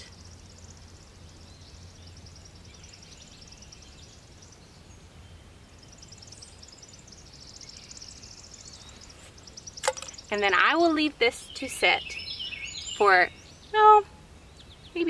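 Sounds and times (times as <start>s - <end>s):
songbird high trill: 0.0s - 15.0s.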